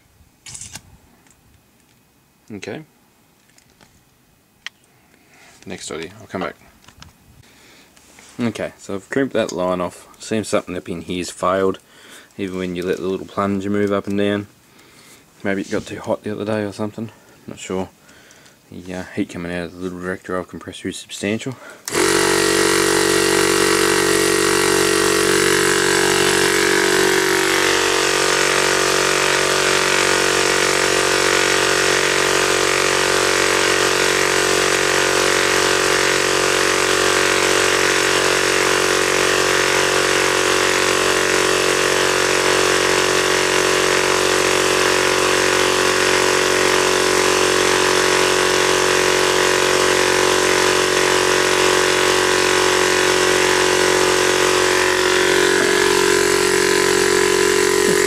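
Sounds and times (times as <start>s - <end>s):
piston air compressor running: 21.8s - 58.0s.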